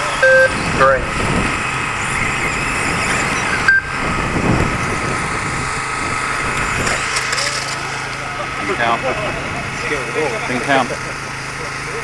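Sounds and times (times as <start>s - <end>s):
short electronic beep: 0.0s - 1.0s, 2.2s - 4.0s
rc car motors whining: 0.0s - 12.0s.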